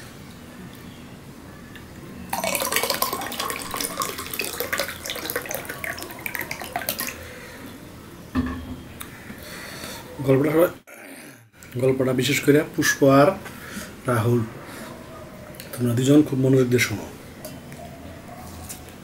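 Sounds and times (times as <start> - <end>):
water pouring into a glass: 2.3 - 7.3.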